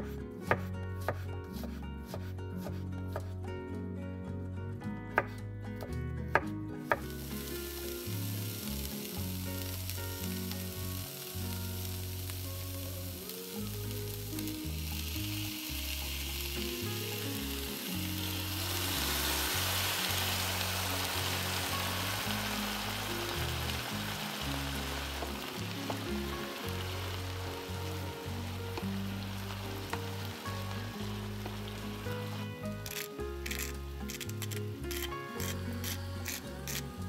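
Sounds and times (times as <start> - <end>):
knife chopping on cutting board: 0.4 - 3.3
food sizzling in oil: 6.9 - 37.0.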